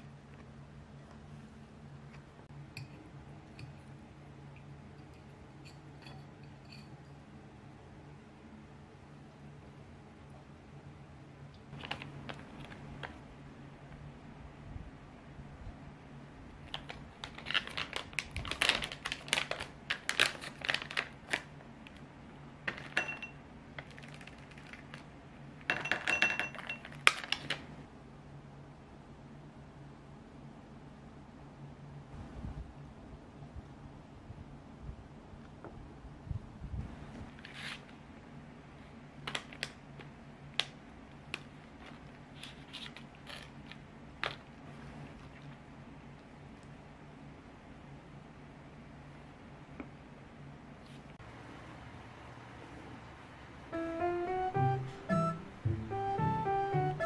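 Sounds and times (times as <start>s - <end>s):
plastic pouch crinkling: 16.7s - 22.0s, 23.8s - 25.1s
chocolate pieces clinking on glass: 22.7s - 23.4s, 25.7s - 27.2s.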